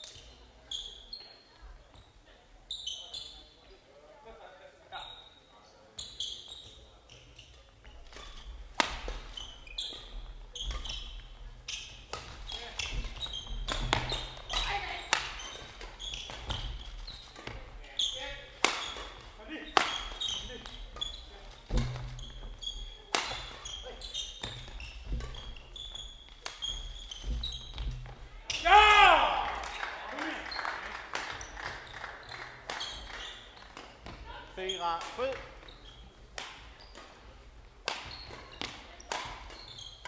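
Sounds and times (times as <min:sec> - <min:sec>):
shoes squeaking on court floor: 0:00.0 - 0:03.8, 0:04.9 - 0:40.0
rackets striking shuttlecock: 0:07.9 - 0:28.7, 0:35.0 - 0:40.0.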